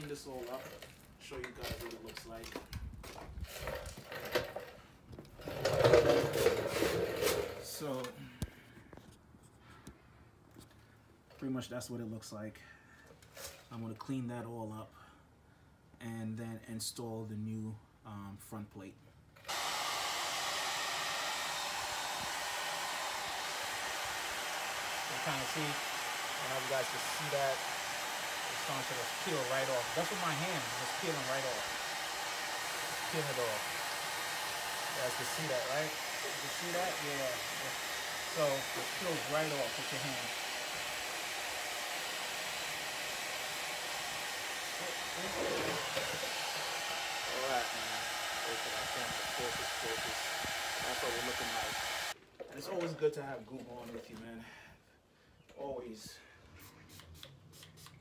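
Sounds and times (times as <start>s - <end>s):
hair dryer blowing: 5.5s - 7.6s, 19.4s - 52.2s.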